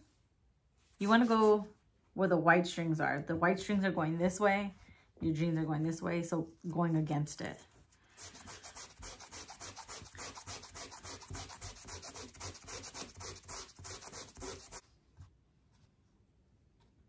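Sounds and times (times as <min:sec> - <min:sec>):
sandpaper rubbing on denim: 0:08.2 - 0:14.8.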